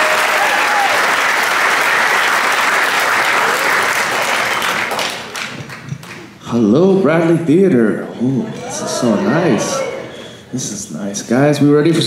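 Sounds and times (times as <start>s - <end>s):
people whooping: 0.0s - 2.0s, 8.5s - 10.4s
audience applauding: 0.0s - 6.3s.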